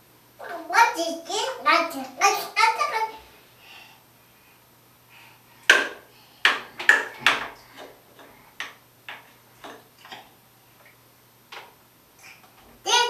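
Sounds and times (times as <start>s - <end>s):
plastic toy knocking on bathtub: 5.7s - 7.6s.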